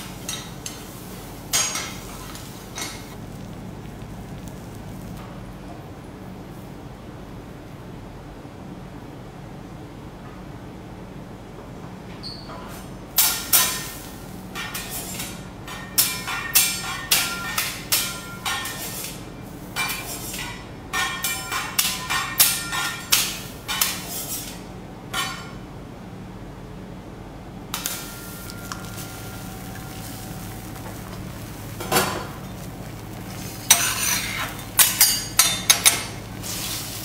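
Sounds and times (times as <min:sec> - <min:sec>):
metal spatulas clanking on griddle: 0:01.5 - 0:03.2, 0:14.6 - 0:19.2, 0:19.8 - 0:25.6, 0:33.7 - 0:36.2.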